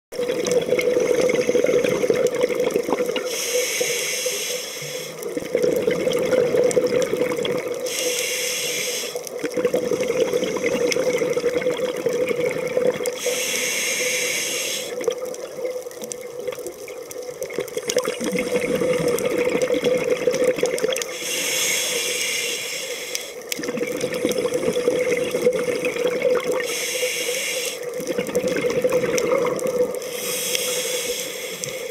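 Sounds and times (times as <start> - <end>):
gurgling exhaled bubbles: 0.1 - 3.4, 5.2 - 7.9, 9.2 - 13.4, 14.0 - 21.3, 23.5 - 26.7, 27.8 - 30.2
regulator breath hiss: 3.2 - 5.3, 7.8 - 9.3, 13.2 - 15.0, 21.1 - 23.4, 26.6 - 28.0, 30.0 - 31.9.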